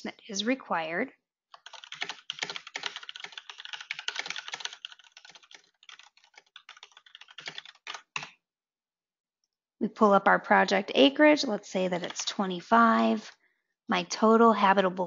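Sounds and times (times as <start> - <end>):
typing on computer keyboard: 1.5 - 8.4.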